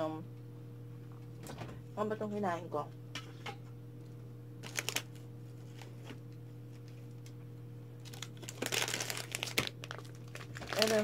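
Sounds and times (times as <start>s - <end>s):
low electrical hum: 0.0s - 11.0s
plastic packet crinkling: 4.6s - 5.9s, 8.0s - 11.0s.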